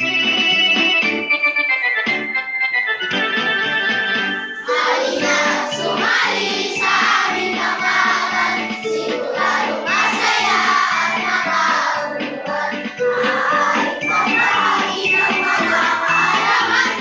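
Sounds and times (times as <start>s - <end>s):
instrumental backing music: 0.0s - 17.0s
children singing in unison: 4.6s - 17.0s.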